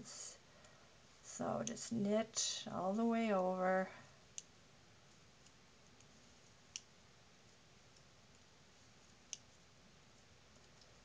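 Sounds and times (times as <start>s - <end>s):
knitting needles clicking: 4.3s - 4.5s, 6.7s - 6.9s, 7.9s - 11.0s.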